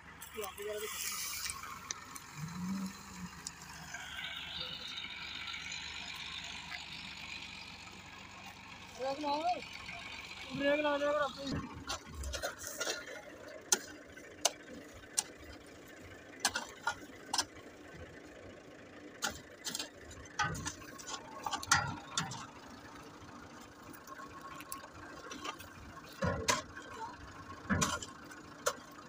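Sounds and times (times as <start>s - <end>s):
hoe striking dry soil: 16.4s - 17.6s, 19.2s - 22.5s.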